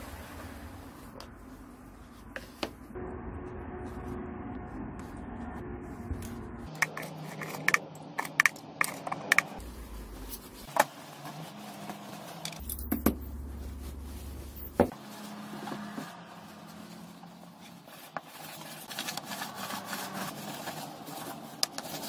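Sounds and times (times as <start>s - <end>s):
small metal parts clinking: 12.4s - 13.3s.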